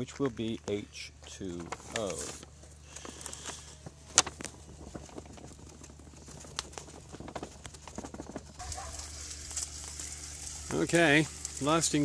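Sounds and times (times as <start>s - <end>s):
paper bag rustling: 0.0s - 12.0s
ash pouring into a bucket: 8.6s - 12.0s.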